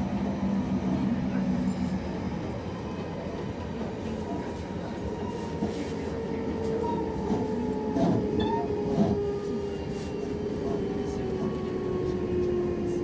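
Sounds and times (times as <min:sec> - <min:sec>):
train wheel and rail rumble: 0:00.0 - 0:13.0.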